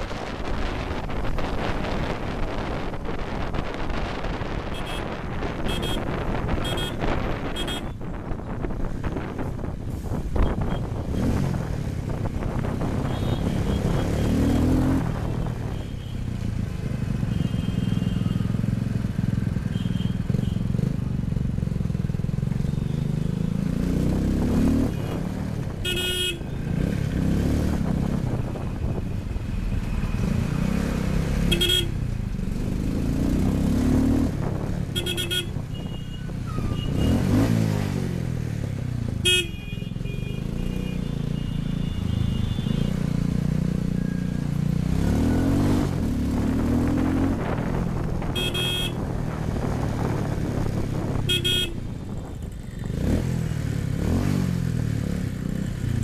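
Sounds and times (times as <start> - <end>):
vehicle horn honks: 4.8 - 8.0, 25.8 - 26.4, 31.5 - 32.0, 35.0 - 37.2, 39.2 - 43.0, 48.3 - 49.0, 51.3 - 51.8
motorcycle engine accelerating: 29.9 - 35.1, 44.7 - 56.0.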